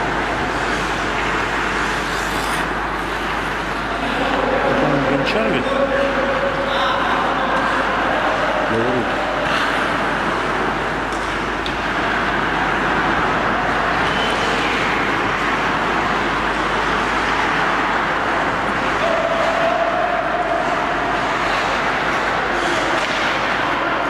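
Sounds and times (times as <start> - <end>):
ice rink rushing noise: 0.0 - 24.0
skate blades scraping ice: 0.4 - 3.9.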